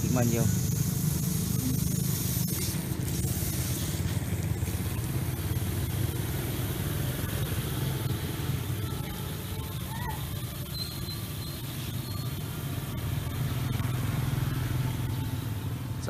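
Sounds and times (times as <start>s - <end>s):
water spraying from sprinkler: 0.0s - 15.8s.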